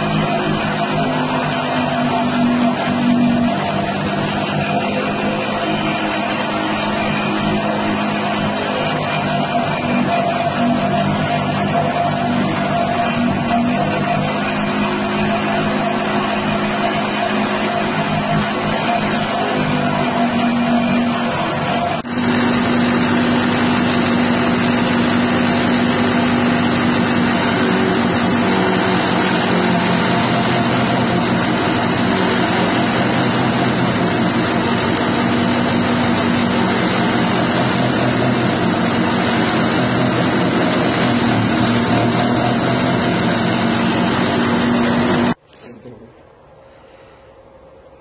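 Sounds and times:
petrol engine running: 0:00.0 - 0:45.5
grass chopper chopping stalks: 0:22.0 - 0:45.4.

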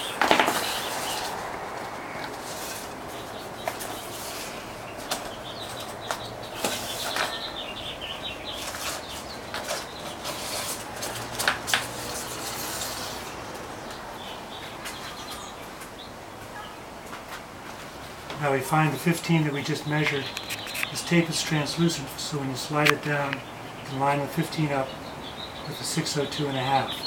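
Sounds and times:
plastic tape rustling and crinkling: 0:08.5 - 0:14.0, 0:20.0 - 0:21.0.

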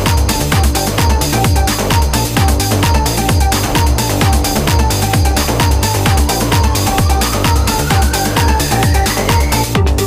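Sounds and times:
electronic music with kick drum: 0:00.0 - 0:10.0
thin rising synth tone: 0:02.6 - 0:09.8.

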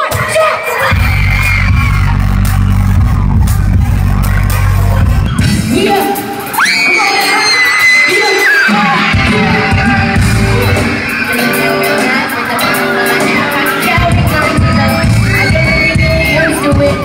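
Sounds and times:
crowd yelling: 0:00.0 - 0:17.0
live rock band with singer: 0:00.0 - 0:17.0.

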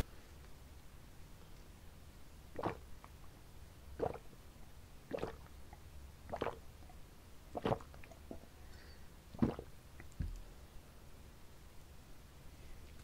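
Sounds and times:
person gulping and swallowing: 0:02.5 - 0:03.0, 0:04.0 - 0:04.4, 0:05.1 - 0:06.6, 0:07.5 - 0:08.6, 0:09.3 - 0:10.4.

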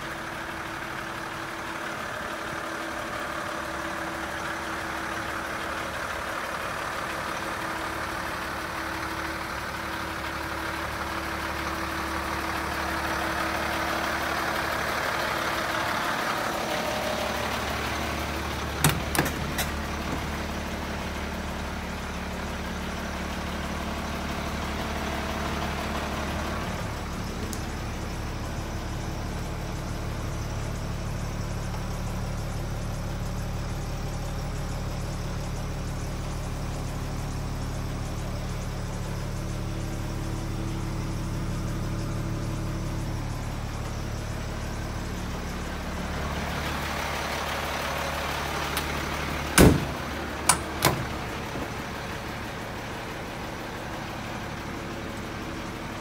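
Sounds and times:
diesel engine idling: 0:00.0 - 0:56.0
sharp knocks: 0:49.6 - 0:51.1.

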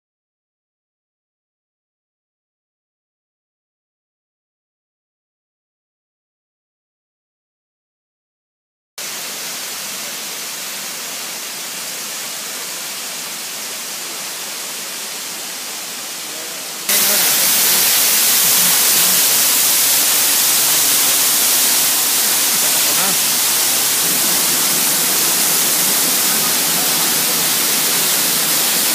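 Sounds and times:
waterfall rushing: 0:09.0 - 0:28.9.

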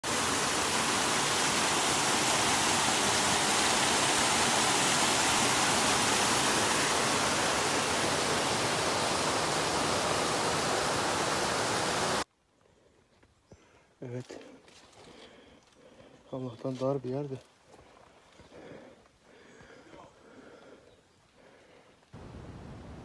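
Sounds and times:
waterfall rushing into pool: 0:00.0 - 0:12.2.

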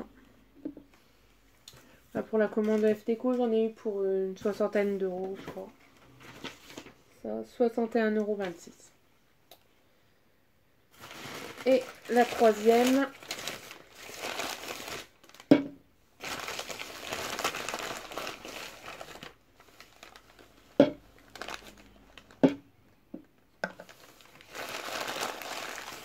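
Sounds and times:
paper bag crinkling: 0:10.9 - 0:15.5, 0:16.2 - 0:22.4, 0:23.8 - 0:26.0.

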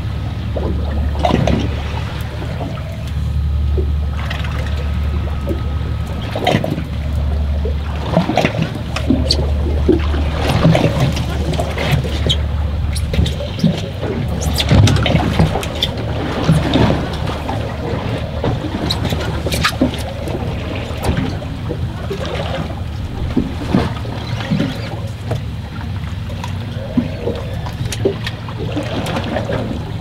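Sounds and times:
steady low hum: 0:00.0 - 0:30.0
water sloshing against boat hull: 0:00.0 - 0:30.0.

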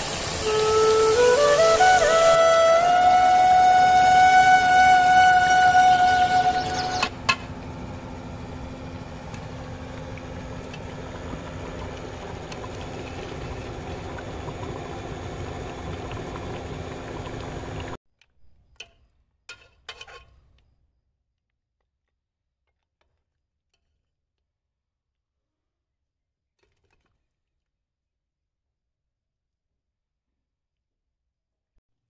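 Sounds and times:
food bubbling in a pot: 0:09.1 - 0:18.0.

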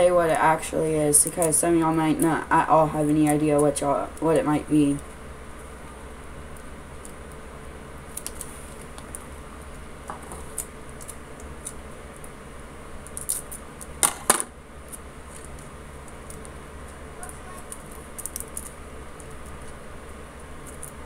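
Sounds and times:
packing tape handled: 0:08.1 - 0:12.4, 0:13.0 - 0:21.0.

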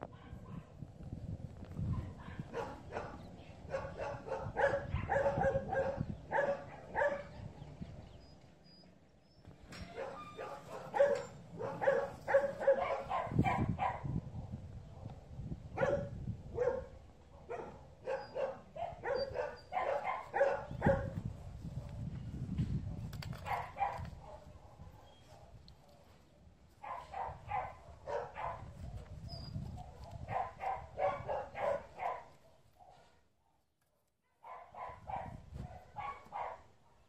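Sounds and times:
dog barking: 0:00.1 - 0:00.8, 0:01.9 - 0:07.4, 0:10.0 - 0:14.2, 0:15.8 - 0:21.2, 0:23.5 - 0:25.6, 0:26.8 - 0:28.8, 0:29.8 - 0:33.6, 0:34.4 - 0:37.0.

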